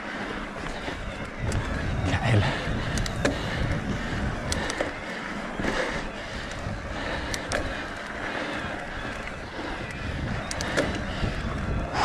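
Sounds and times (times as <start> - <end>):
bike clicks and rattles: 0.0 - 12.0
bike tyres rolling on dirt: 0.0 - 12.0
wind rumbling on microphone: 0.0 - 12.0.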